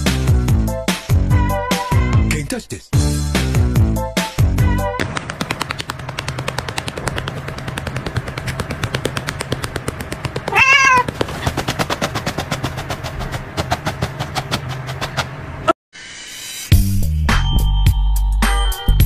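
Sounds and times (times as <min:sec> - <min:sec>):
fast even clicking: 0:05.0 - 0:15.3
steady low hum: 0:05.0 - 0:15.7
cat meowing: 0:10.5 - 0:11.1.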